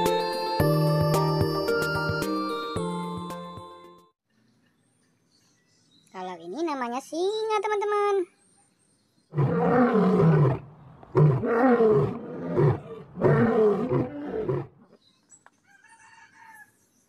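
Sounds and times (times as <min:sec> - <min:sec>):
lion roaring: 0:09.3 - 0:14.7.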